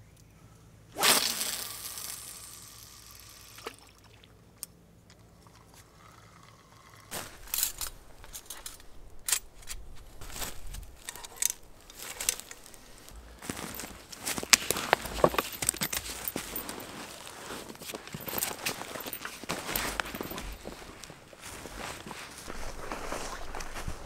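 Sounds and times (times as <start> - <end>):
camping gear being handled: 7.1 - 24.0
footsteps on dry leaves: 7.1 - 24.0.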